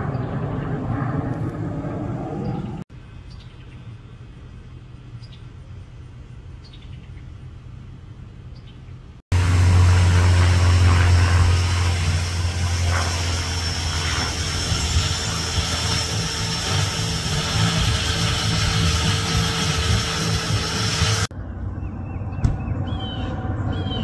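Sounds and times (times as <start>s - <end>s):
propeller aircraft droning overhead: 0.0s - 24.0s.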